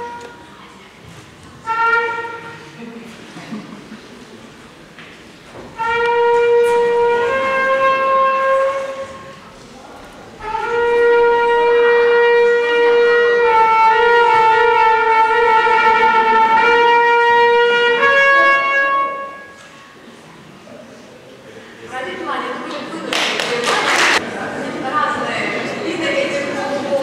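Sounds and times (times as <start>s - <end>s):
horn sounding held notes: 0.0s - 0.5s, 1.6s - 2.7s, 5.8s - 9.5s, 10.4s - 20.0s.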